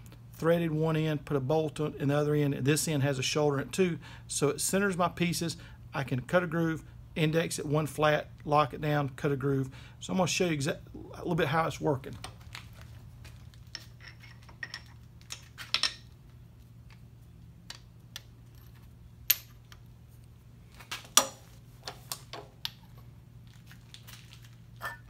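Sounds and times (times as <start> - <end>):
steady low hum: 0.0 - 25.0
metal parts clinking: 13.6 - 16.2, 24.8 - 25.0.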